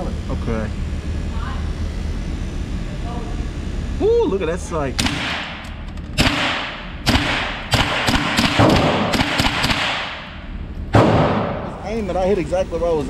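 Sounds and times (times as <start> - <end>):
gunshots echoing: 5.0 - 5.6, 6.2 - 11.7.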